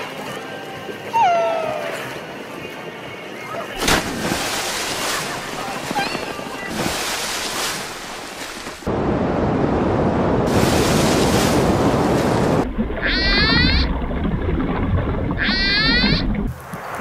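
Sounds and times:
water rushing and splashing: 0.0 - 17.0
killer whale calls: 13.0 - 13.9, 15.3 - 16.4.

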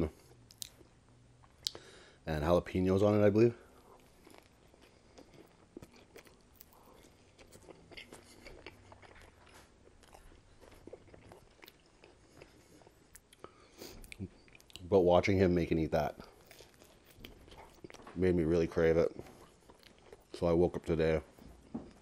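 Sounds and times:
faint chewing with crunches: 0.0 - 2.2, 2.9 - 22.0
mouth clicks: 1.5 - 1.9.

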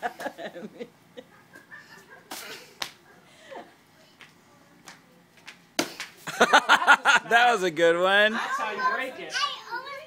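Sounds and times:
stick smacking paper pinata: 5.8 - 6.2.

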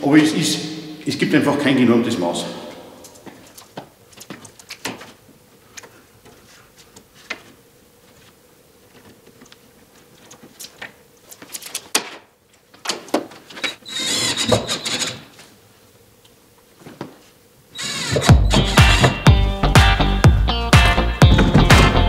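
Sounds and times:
scraping and rubbing of cabinet: 13.0 - 15.4.

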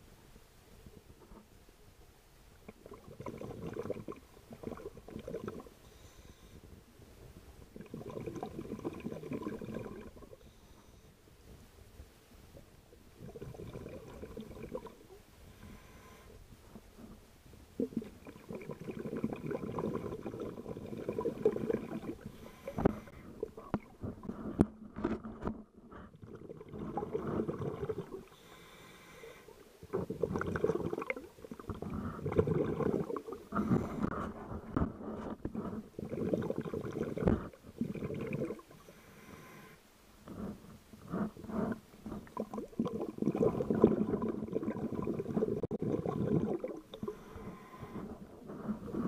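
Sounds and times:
underwater rumbling and gurgling: 2.6 - 5.8, 6.6 - 10.6, 11.4 - 28.5, 29.7 - 38.9, 40.2 - 49.0.

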